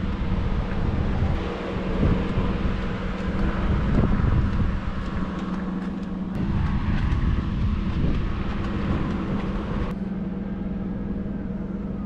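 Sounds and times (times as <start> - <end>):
vehicle engine idling: 0.0 - 12.0.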